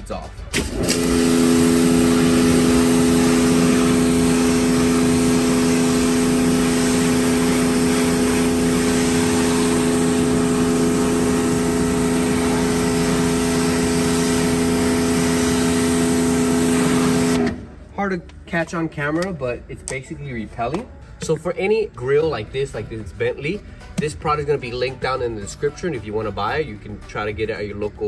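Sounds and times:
pressure washer humming: 0:00.5 - 0:17.8
water spray hissing: 0:00.6 - 0:17.4.

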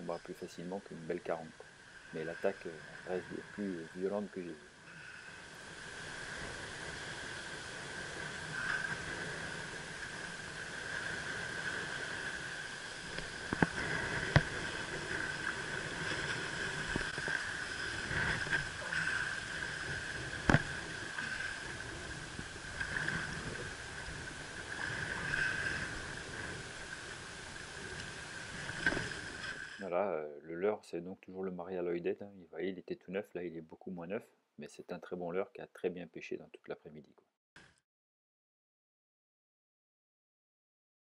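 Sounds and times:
steady high whine: 0:00.0 - 0:29.9
water splashing: 0:02.1 - 0:29.9.

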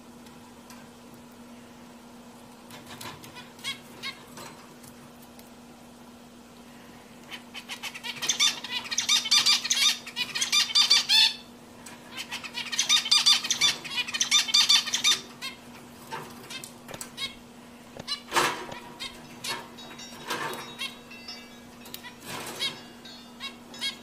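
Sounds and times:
finch singing: 0:07.3 - 0:15.8, 0:18.0 - 0:24.0.

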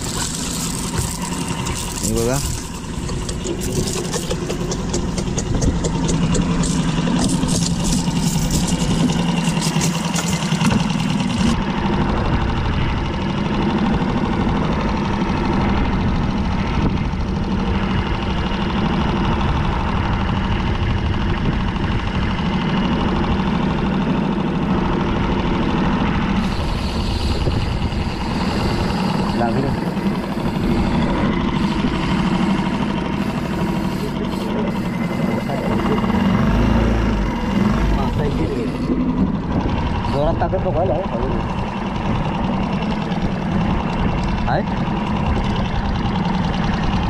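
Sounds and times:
crackling noise: 0:00.0 - 0:11.6
outboard motor running: 0:00.0 - 0:47.0.

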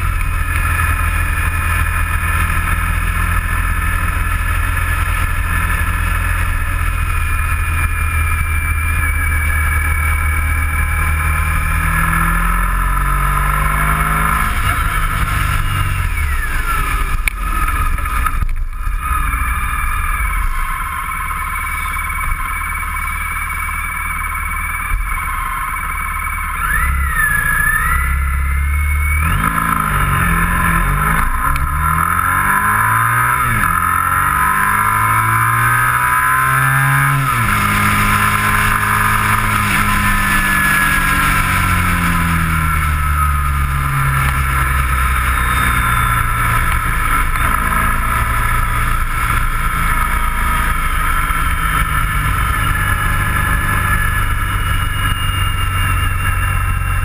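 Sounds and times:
motorcycle engine revving: 0:00.0 - 0:57.0
wind and road noise: 0:00.0 - 0:57.0.

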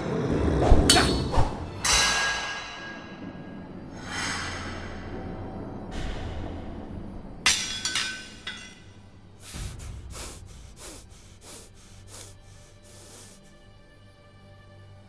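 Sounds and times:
metallic clang ringing: 0:07.4 - 0:09.0
fast panicked breathing: 0:09.4 - 0:13.6.

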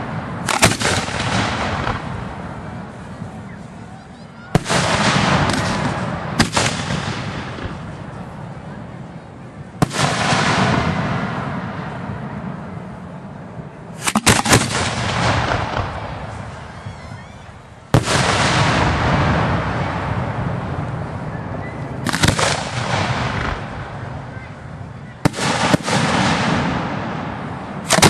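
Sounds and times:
firework booms and bangs: 0:00.0 - 0:03.7, 0:04.5 - 0:08.6, 0:09.7 - 0:13.1, 0:13.9 - 0:16.8, 0:17.9 - 0:28.0
rumble after firework bursts: 0:00.0 - 0:28.0.

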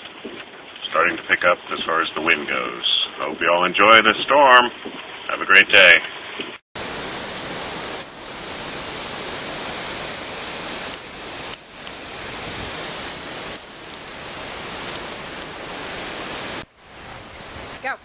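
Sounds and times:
wind and rain rushing through trees: 0:06.1 - 0:18.0.

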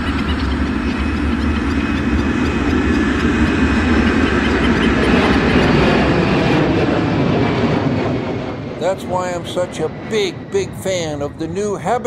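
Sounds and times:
heavy vehicle traffic rumble: 0:00.0 - 0:12.0.

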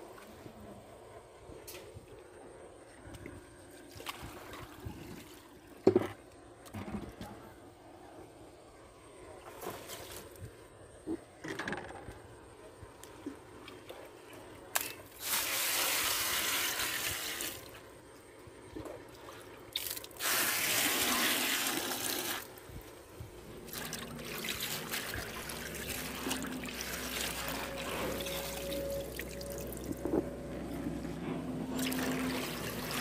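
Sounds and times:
water splashing and dripping: 0:19.1 - 0:22.5, 0:23.6 - 0:30.0, 0:31.7 - 0:33.0
water pouring into a basin: 0:23.7 - 0:29.9, 0:31.7 - 0:33.0.

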